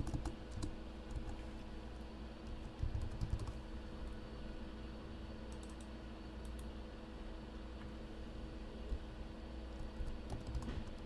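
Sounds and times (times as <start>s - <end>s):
computer keyboard typing: 0.0s - 1.4s, 2.6s - 3.6s, 5.5s - 6.7s, 10.0s - 11.0s
low electrical hum: 0.0s - 11.0s.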